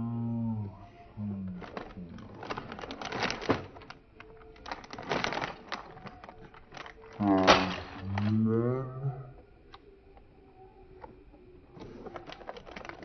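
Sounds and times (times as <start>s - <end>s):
low voice-like sounds: 0.0s - 2.5s, 5.9s - 12.4s
plastic bag crinkling and tearing: 1.5s - 8.4s, 11.8s - 13.0s.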